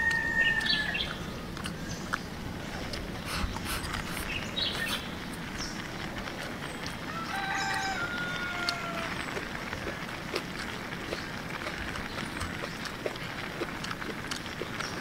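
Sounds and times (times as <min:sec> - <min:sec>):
rooster crowing: 0:00.0 - 0:01.3, 0:07.1 - 0:09.3
small birds chirping: 0:00.0 - 0:15.0.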